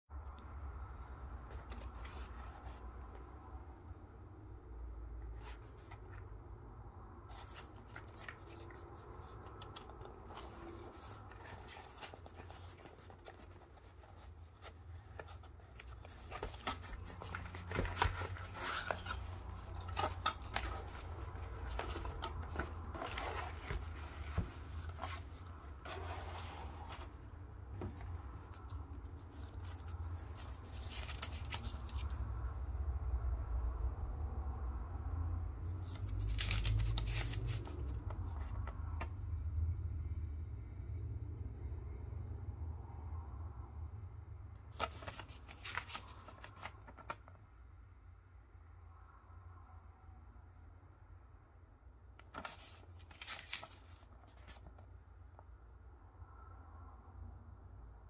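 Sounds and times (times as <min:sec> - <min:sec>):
paper leaflet rustling: 0:01.5 - 0:03.2, 0:07.3 - 0:32.2, 0:35.8 - 0:38.7, 0:44.7 - 0:47.4, 0:52.2 - 0:54.9
cardboard box being opened: 0:07.3 - 0:27.2, 0:44.7 - 0:47.3, 0:52.2 - 0:54.7.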